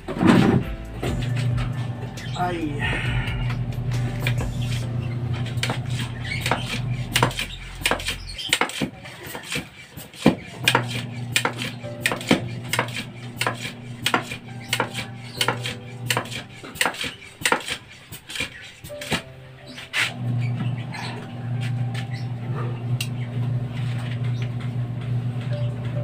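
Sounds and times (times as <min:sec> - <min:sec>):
steady low hum: 0:00.0 - 0:08.4, 0:10.7 - 0:16.7.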